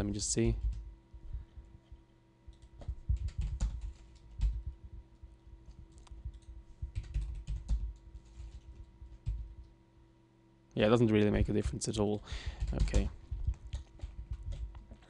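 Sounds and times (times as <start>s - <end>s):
typing on computer keyboard: 0.6s - 0.8s, 2.5s - 4.6s, 5.9s - 9.5s, 12.5s - 15.0s.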